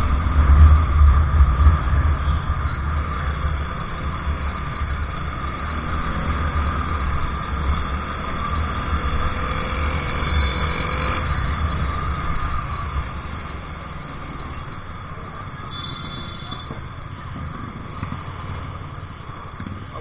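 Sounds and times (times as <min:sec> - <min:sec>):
road noise: 0:00.0 - 0:20.0
scooter engine drone: 0:00.0 - 0:20.0.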